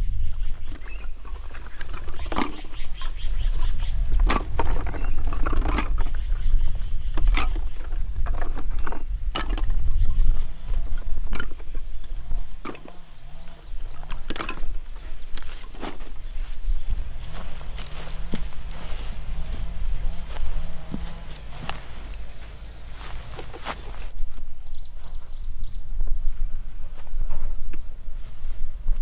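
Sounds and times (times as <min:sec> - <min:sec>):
stem cuttings clattering into basket: 0:14.0 - 0:16.1, 0:17.2 - 0:22.3.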